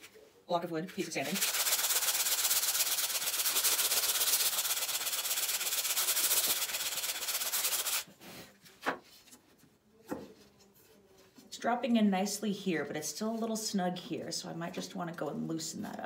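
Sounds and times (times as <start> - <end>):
sandpaper rubbing on wood: 1.2 - 8.1.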